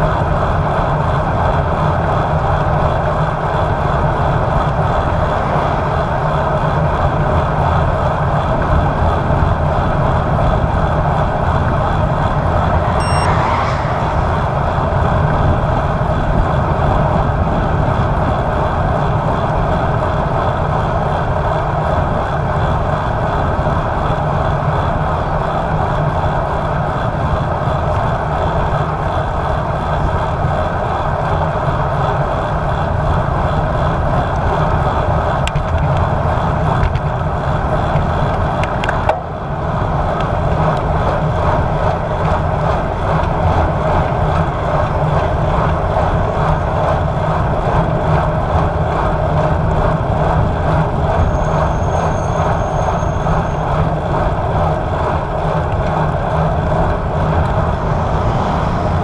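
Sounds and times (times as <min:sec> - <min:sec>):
road noise: 0:00.0 - 0:59.0
wind rush: 0:03.5 - 0:19.5, 0:53.2 - 0:59.0.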